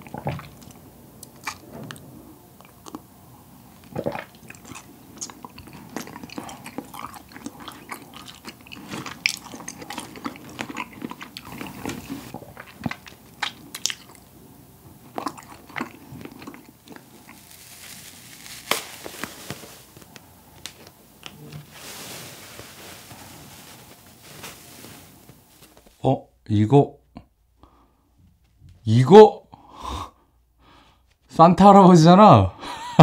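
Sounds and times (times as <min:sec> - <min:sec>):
wet chewing: 0:00.0 - 0:21.5
cotton candy pulled apart: 0:16.9 - 0:21.8.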